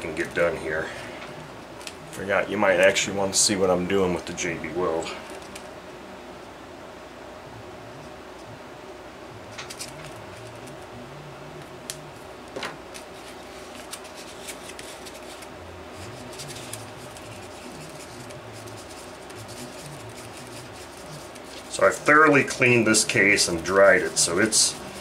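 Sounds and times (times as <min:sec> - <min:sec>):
low steady hum: 0:00.0 - 0:25.0
stick stirring on paper plate: 0:13.0 - 0:25.0.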